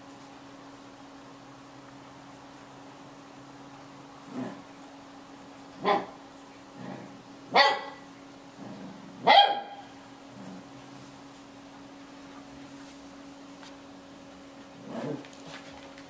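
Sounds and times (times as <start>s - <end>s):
dog barking: 5.8s - 6.2s, 7.5s - 8.0s, 9.2s - 9.9s.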